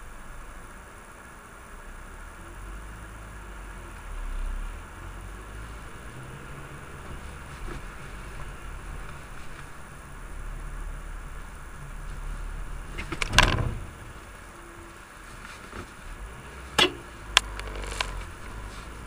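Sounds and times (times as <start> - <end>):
car engine and road rumble: 0.0 - 19.0.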